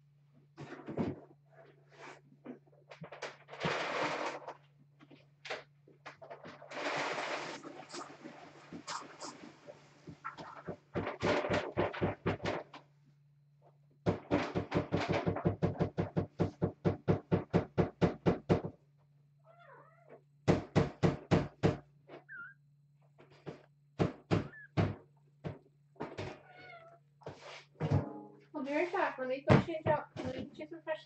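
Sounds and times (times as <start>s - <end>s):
cat scratching in litter: 2.9s - 4.7s, 6.1s - 12.2s.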